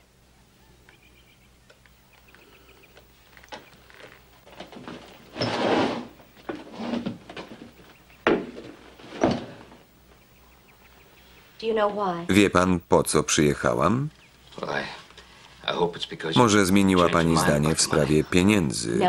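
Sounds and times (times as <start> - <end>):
wooden furniture scraping: 3.9 - 7.8, 8.4 - 9.8
sharp wooden knocks: 8.2 - 9.5.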